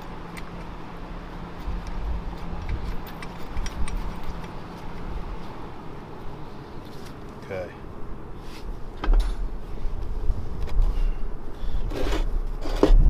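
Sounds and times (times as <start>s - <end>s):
metallic clicks of bolts: 2.6s - 4.6s.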